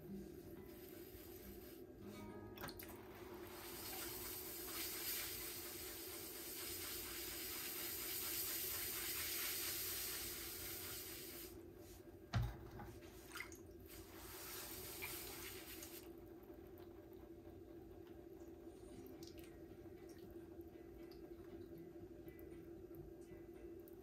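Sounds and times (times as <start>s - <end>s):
steady low hum: 0.0s - 24.0s
water running from a tap: 2.6s - 11.6s, 13.2s - 16.1s.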